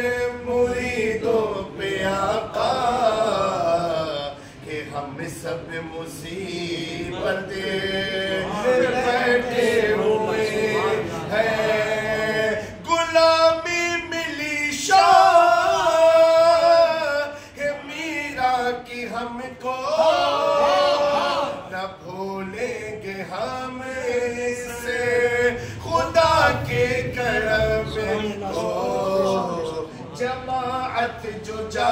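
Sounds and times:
man singing devotional song: 0:00.0 - 0:31.9.

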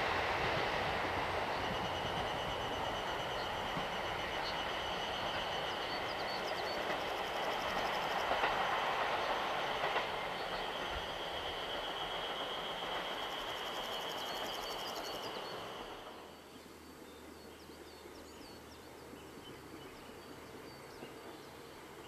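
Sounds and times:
diesel train running with whine: 0:00.0 - 0:22.0.

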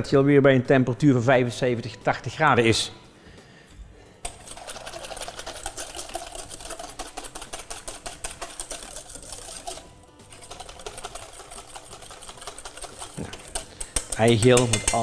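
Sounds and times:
whisk clattering in metal bowl: 0:04.2 - 0:15.0.

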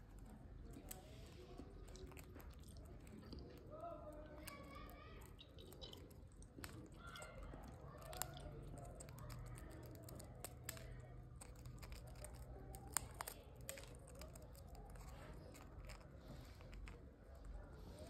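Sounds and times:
parrot beak clicking on biscuit: 0:04.4 - 0:16.1.

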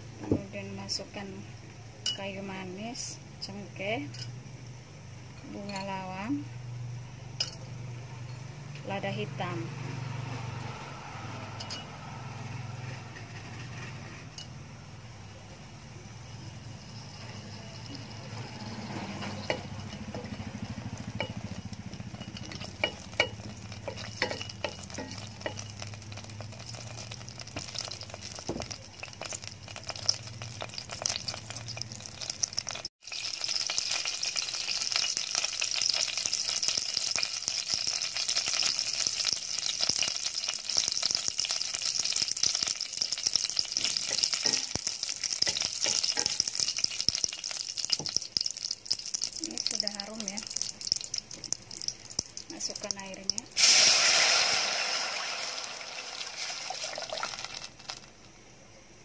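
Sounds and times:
oil sizzling: 0:00.0 - 0:59.0
spices crackling in hot oil: 0:00.0 - 0:59.0
spatula stirring against metal: 0:18.6 - 0:35.2, 0:42.1 - 0:49.3.

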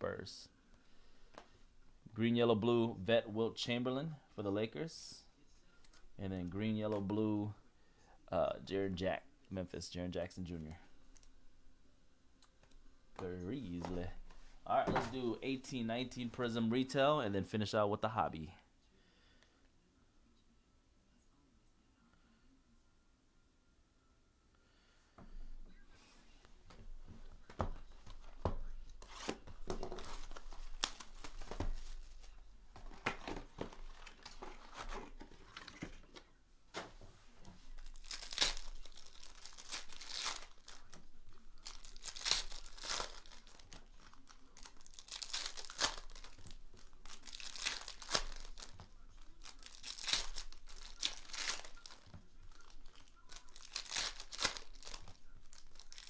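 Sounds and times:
foil wrappers crinkling: 0:37.7 - 0:56.0
foil packs ripping: 0:37.8 - 0:41.0, 0:41.6 - 0:56.0.

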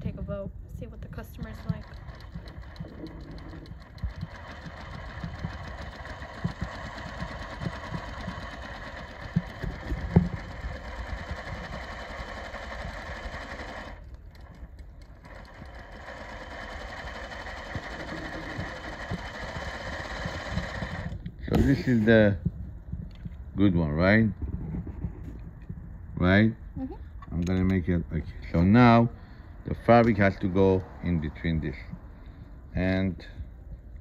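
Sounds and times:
sewing machine running: 0:01.4 - 0:21.2.

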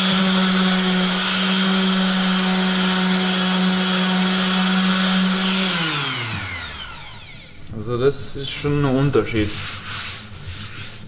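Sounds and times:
orbital sander on plywood: 0:00.0 - 0:07.8.

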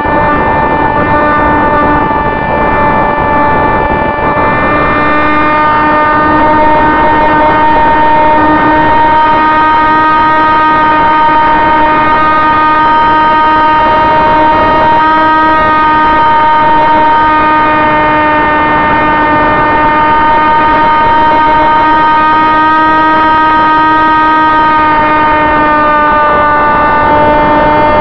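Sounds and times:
electric motor propeller whine: 0:00.0 - 0:28.0.

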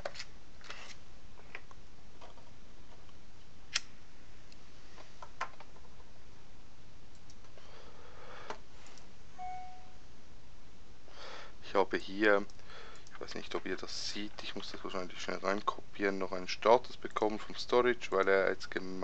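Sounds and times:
background hiss: 0:00.0 - 0:19.0
steady tone: 0:09.4 - 0:10.0.

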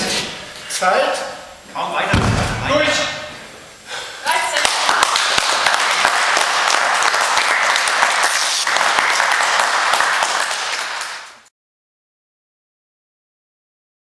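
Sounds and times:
spectators applauding: 0:04.3 - 0:11.5.

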